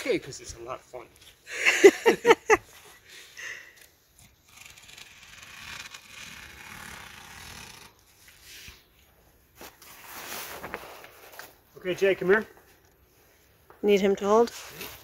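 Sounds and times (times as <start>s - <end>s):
scissors cutting tarp: 3.8s - 8.8s.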